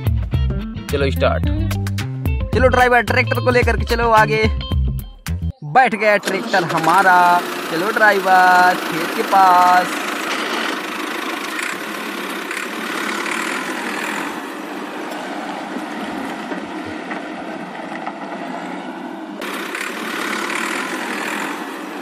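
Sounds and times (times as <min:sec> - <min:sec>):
toy electric motor whirring: 0:08.9 - 0:14.5, 0:19.4 - 0:22.0.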